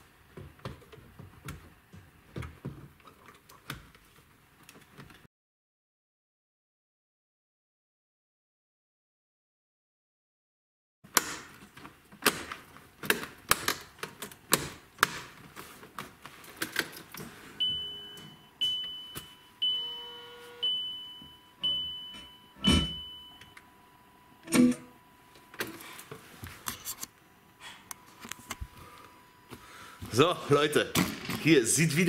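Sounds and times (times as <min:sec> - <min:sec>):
high electronic beeps: 0:17.6 - 0:23.6.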